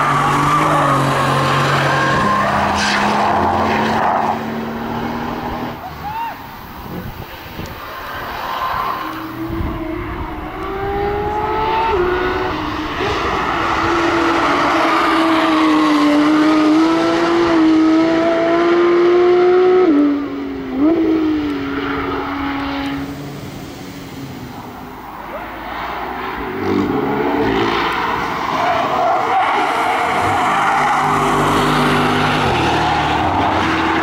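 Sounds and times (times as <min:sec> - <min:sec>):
car engine accelerating hard: 0:09.2 - 0:34.0.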